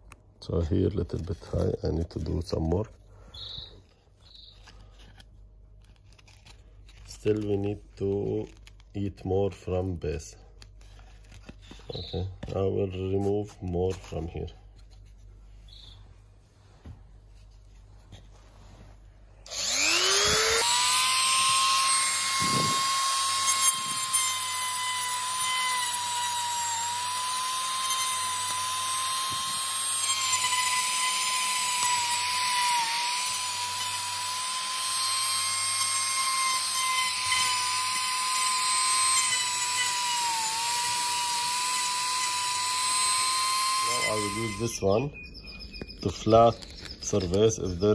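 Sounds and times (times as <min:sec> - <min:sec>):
rotary tool whining: 0:19.4 - 0:47.9.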